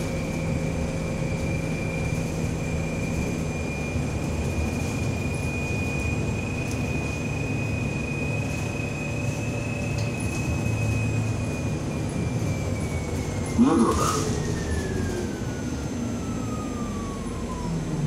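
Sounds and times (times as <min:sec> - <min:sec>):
bus engine and tyre rumble: 0:00.0 - 0:18.0
high whine: 0:13.4 - 0:14.5.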